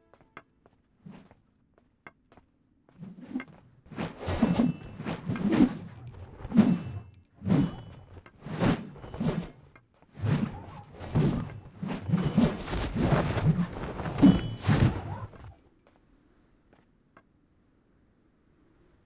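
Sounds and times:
weapon swishing through air: 0:03.0 - 0:09.6, 0:10.2 - 0:15.6.

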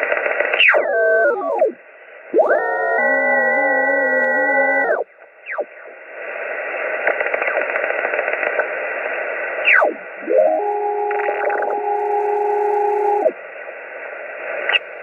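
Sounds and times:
radio static with crackles: 0:00.0 - 0:15.0
steady radio tones: 0:00.0 - 0:15.0.

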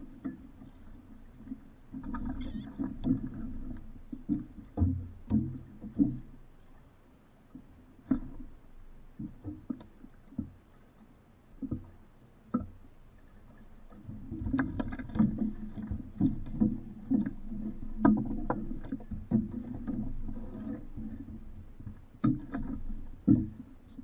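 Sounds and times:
water knocking against hull: 0:02.0 - 0:06.4, 0:13.9 - 0:24.0.

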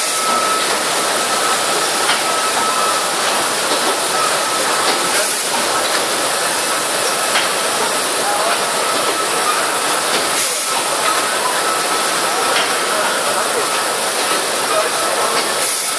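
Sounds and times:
machinery hissing: 0:00.0 - 0:15.9.

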